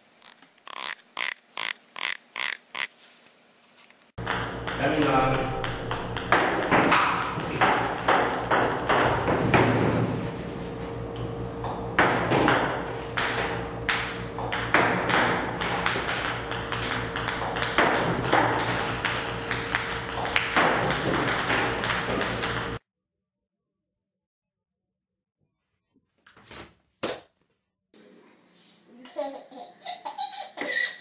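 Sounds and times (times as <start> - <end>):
steady hum: 4.2 - 22.8
table tennis balls clicking: 13.9 - 22.8.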